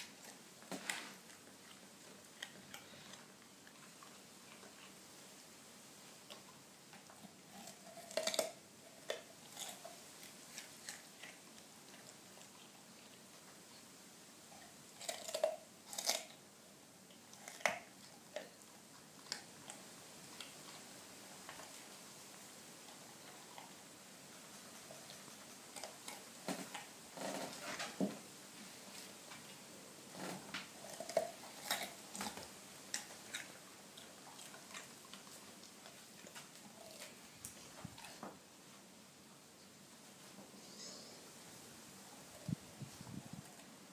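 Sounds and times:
dog crunching carrot: 0.0 - 5.0, 6.2 - 13.3, 14.5 - 16.5, 17.1 - 21.8, 24.6 - 27.8, 29.0 - 38.2.

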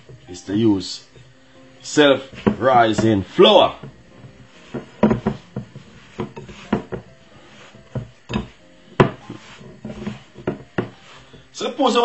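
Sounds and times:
soft rubbing of dough: 0.0 - 12.0
dough knocking on glass bowl: 2.3 - 7.1, 7.9 - 11.0.

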